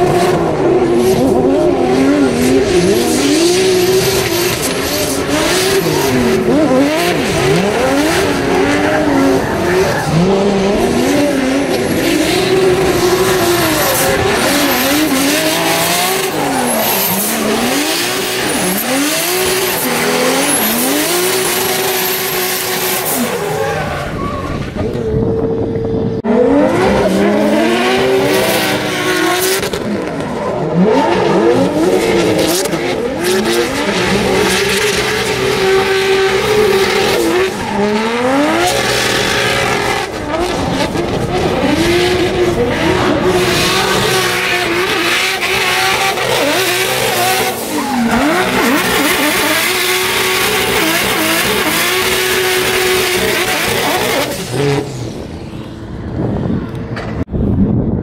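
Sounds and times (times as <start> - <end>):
car engines revving: 0.0 - 57.3.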